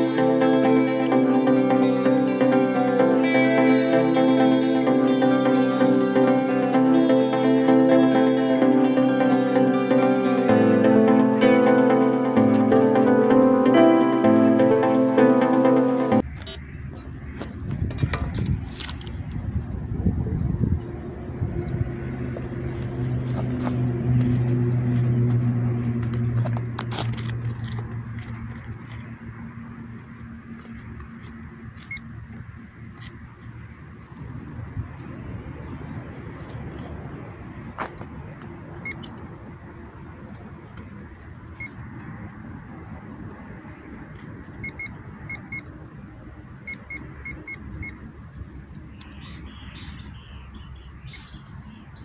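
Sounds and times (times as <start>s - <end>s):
metal detector paired beeps: 0.0s - 4.9s, 16.3s - 16.7s, 21.6s - 21.8s, 31.8s - 32.1s, 38.8s - 39.2s, 41.6s - 41.8s, 44.6s - 45.7s, 46.6s - 48.0s, 49.0s - 51.5s
low engine hum: 0.0s - 52.0s.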